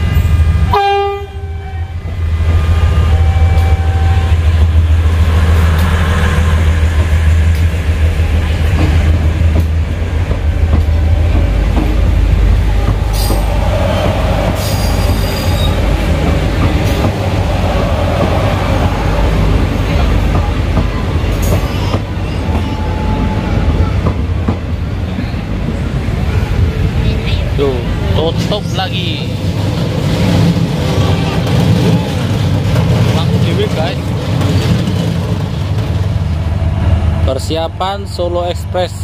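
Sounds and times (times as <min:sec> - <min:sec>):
train horn: 0:00.0 - 0:04.6
wheels rumbling on rails: 0:00.0 - 0:39.0
diesel engines droning: 0:01.8 - 0:39.0.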